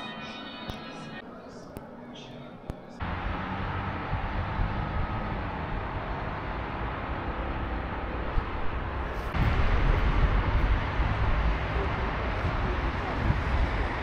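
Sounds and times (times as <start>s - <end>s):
moving vehicle rumble: 3.0s - 14.0s.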